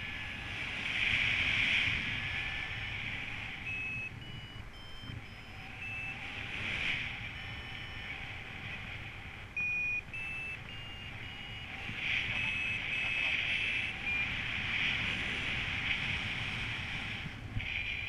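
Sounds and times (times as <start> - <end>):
wind noise on microphone: 0.0 - 18.0
variometer short beeps: 2.0 - 15.3.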